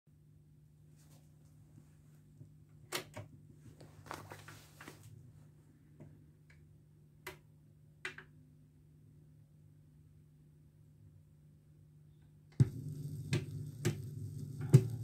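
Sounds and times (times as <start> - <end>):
low steady hum: 12.2 - 15.0
turntable mechanism clicking and clunking: 12.5 - 15.0.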